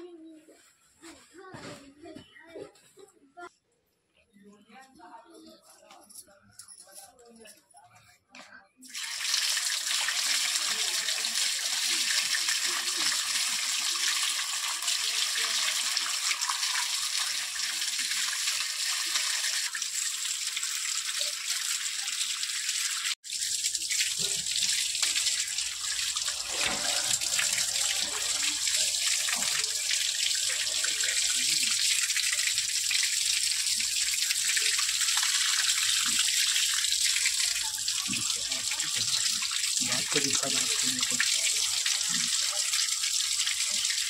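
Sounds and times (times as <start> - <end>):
water running and splashing: 8.9 - 44.0.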